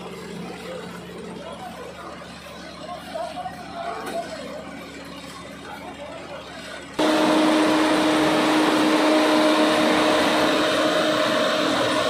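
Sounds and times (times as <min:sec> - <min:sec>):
loud engine drone: 0:06.9 - 0:12.0.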